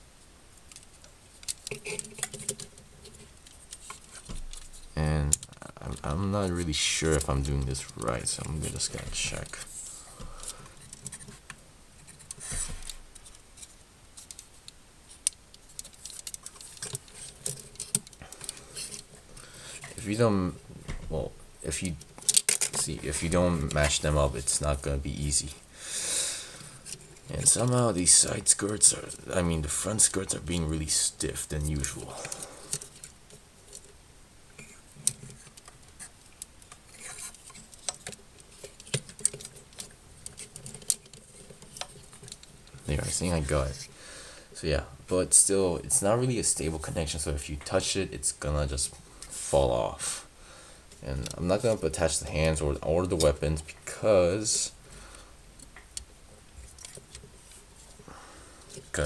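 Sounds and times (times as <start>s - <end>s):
handling rustle: 0.5s - 25.7s, 26.6s - 44.0s, 50.9s - 59.0s
plastic parts clicking: 0.6s - 6.2s, 10.2s - 20.0s, 21.8s - 24.6s, 34.6s - 43.2s.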